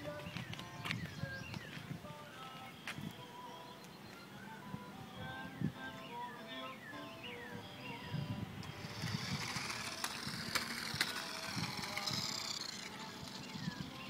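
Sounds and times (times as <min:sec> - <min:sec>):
toy car electric motor whining: 0:08.6 - 0:14.0.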